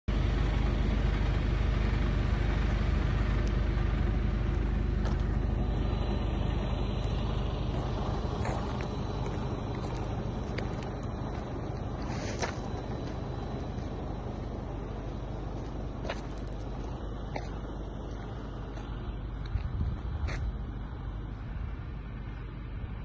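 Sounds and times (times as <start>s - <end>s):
motor vehicle rumbling: 0.1s - 23.0s.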